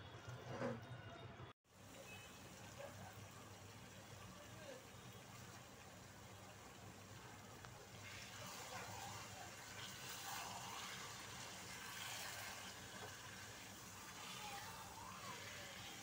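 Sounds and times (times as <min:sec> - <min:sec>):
spatula stirring sizzling curry: 0:05.2 - 0:16.0.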